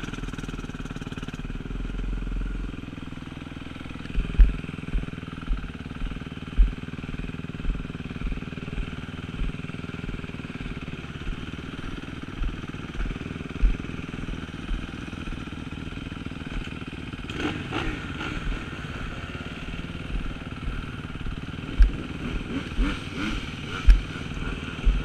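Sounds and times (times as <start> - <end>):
engine revving: 0.0 - 25.0
motorcycle engine idling: 0.0 - 25.0
low engine thumps: 3.9 - 17.1, 18.4 - 25.0.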